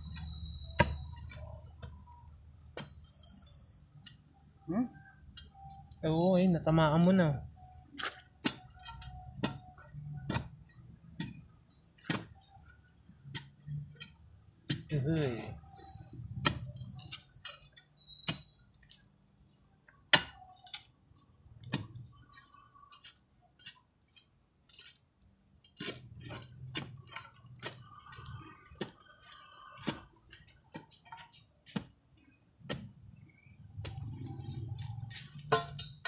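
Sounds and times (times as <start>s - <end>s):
metal tool striking hard ground: 33.8s - 36.0s.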